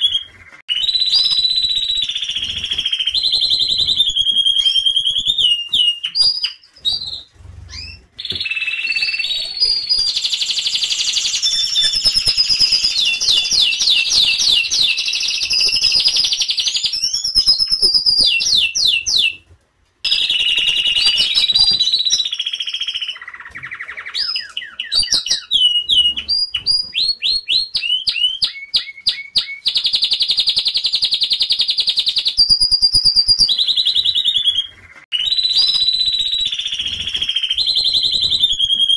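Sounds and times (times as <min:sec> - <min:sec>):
canary singing trills: 0:00.0 - 0:19.4, 0:20.1 - 0:38.9.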